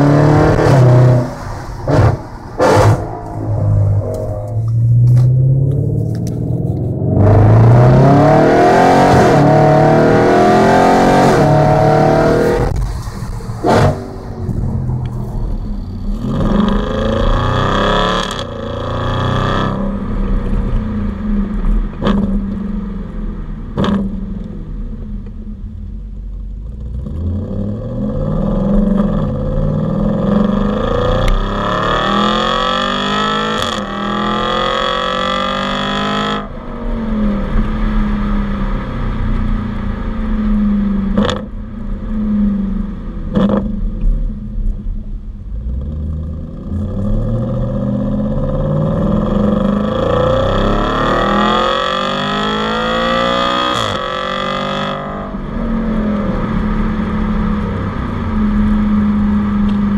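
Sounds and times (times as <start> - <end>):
exhaust cracks: 0.0 - 8.2, 11.2 - 27.4, 28.0 - 59.9
car engine accelerating hard: 0.0 - 59.9.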